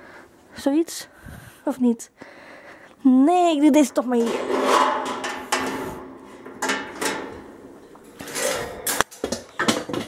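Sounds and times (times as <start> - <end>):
wire cage rattling: 4.0 - 10.0.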